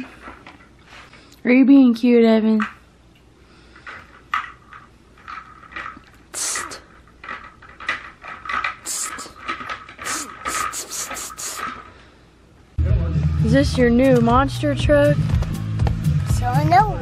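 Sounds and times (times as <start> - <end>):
plastic toy vehicles clattering: 3.7 - 11.9.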